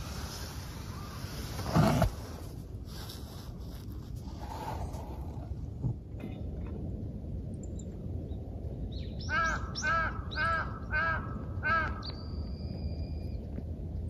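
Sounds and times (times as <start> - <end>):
low steady rumble: 0.0 - 14.0
crow cawing: 9.3 - 12.1.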